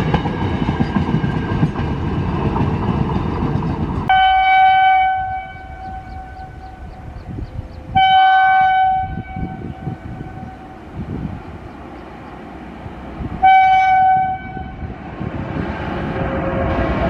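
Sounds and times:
train rumbling along track: 0:00.0 - 0:17.0
locomotive horn blast: 0:04.1 - 0:06.9, 0:07.9 - 0:10.8, 0:13.4 - 0:15.0, 0:16.2 - 0:17.0.

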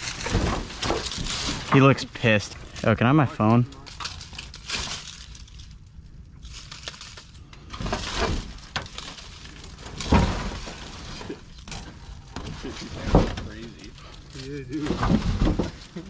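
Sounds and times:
metal roofing sheet rattling: 0:00.0 - 0:02.4, 0:06.5 - 0:16.0
rustling in dry leaves: 0:00.0 - 0:16.0.

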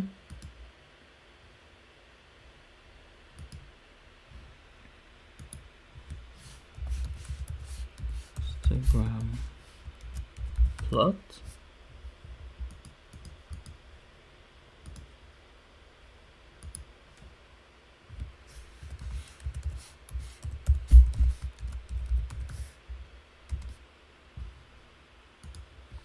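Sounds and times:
typing on computer keyboard: 0:18.9 - 0:19.8, 0:23.5 - 0:23.8
dull low thumps: 0:20.6 - 0:21.4.

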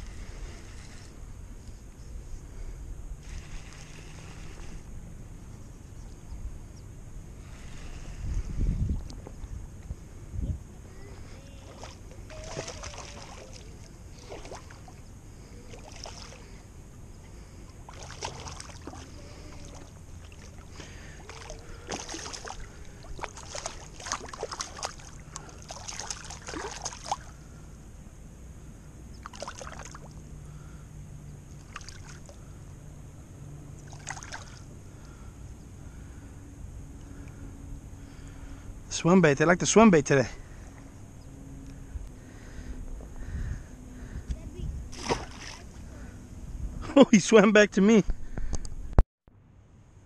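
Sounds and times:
fish splashing in water: 0:11.7 - 0:15.0, 0:15.6 - 0:16.6, 0:17.9 - 0:27.4, 0:29.2 - 0:30.2, 0:31.6 - 0:32.4, 0:33.8 - 0:34.7, 0:44.9 - 0:45.8.

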